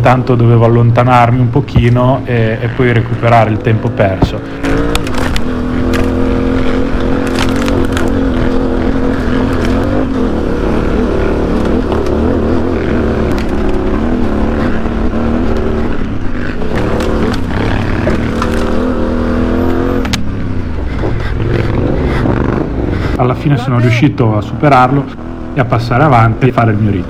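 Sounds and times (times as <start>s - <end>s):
motorcycle engine revving: 0.0s - 27.0s.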